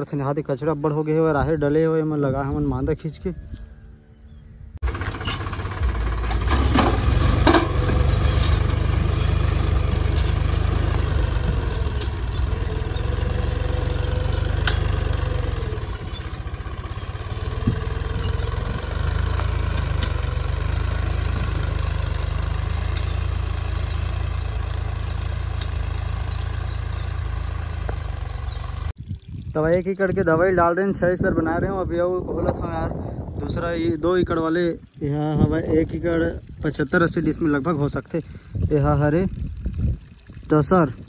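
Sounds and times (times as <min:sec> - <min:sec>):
tractor diesel engine running: 0:04.7 - 0:29.0.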